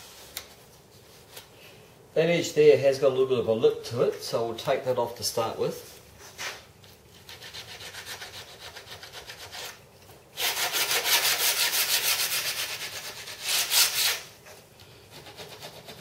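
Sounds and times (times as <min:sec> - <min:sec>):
sandpaper rubbing: 0:07.2 - 0:09.8, 0:10.4 - 0:14.3, 0:15.1 - 0:16.0.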